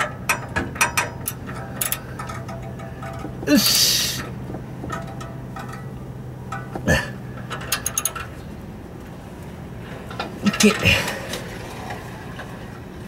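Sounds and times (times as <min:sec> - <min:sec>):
ratchet wrench clicking: 0:00.0 - 0:04.3, 0:07.5 - 0:08.2.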